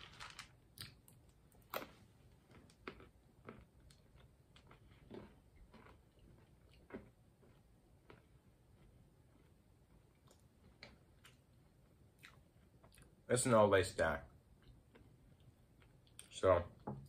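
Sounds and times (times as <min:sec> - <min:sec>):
person chewing crunchy food: 0:01.7 - 0:13.2, 0:14.5 - 0:16.3.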